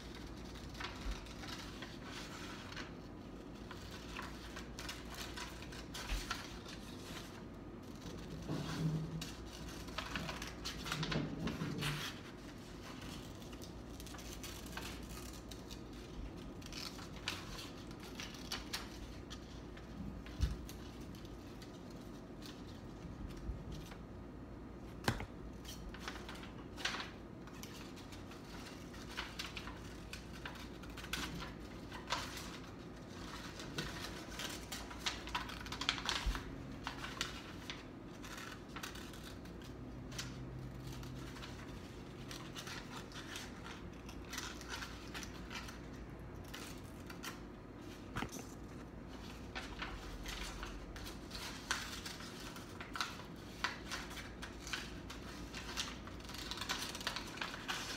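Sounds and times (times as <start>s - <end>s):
paper rustling: 0.0s - 57.9s
scissors snipping paper: 49.2s - 57.9s.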